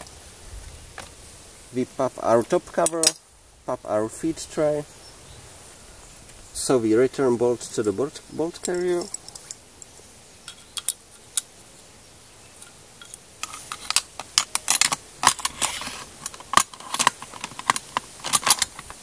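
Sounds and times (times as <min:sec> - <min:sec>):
metal parts scraping: 0:08.5 - 0:09.6, 0:12.6 - 0:19.0
steel parts clicking and clacking: 0:08.5 - 0:09.6, 0:10.5 - 0:11.5, 0:12.6 - 0:19.0.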